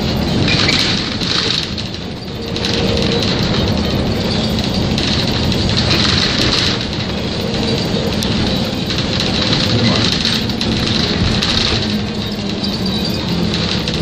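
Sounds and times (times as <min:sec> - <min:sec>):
bus engine humming: 0:00.0 - 0:14.0
road and body noise: 0:00.0 - 0:14.0.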